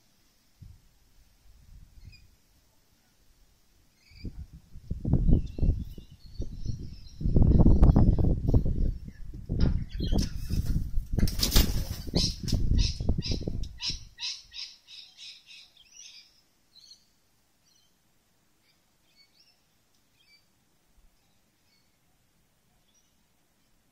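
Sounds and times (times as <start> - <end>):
faint bird chirps: 2.0 - 2.4, 3.9 - 4.4, 12.2 - 18.0, 18.6 - 20.5
bird wingbeats: 10.2 - 12.7.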